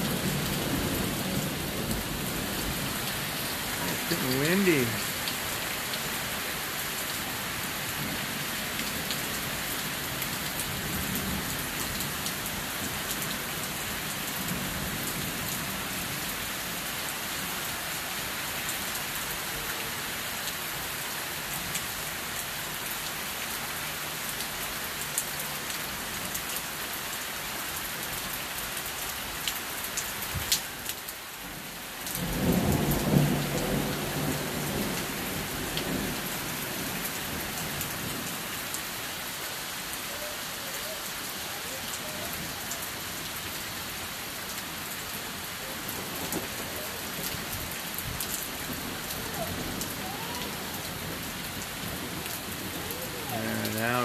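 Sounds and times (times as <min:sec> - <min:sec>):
heavy rain falling: 0:00.0 - 0:54.0
low rumble of thunder: 0:32.2 - 0:38.1.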